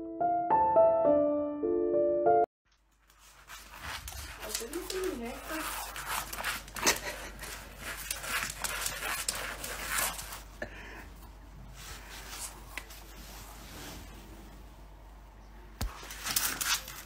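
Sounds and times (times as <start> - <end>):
pet scuffling with toy: 3.1 - 10.5, 15.9 - 17.0.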